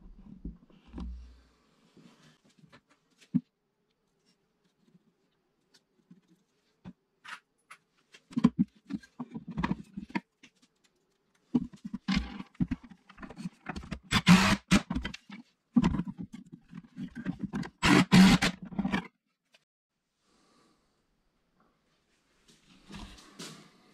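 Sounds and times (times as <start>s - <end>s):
impact driver driving screws: 14.1s - 14.9s, 17.8s - 19.0s.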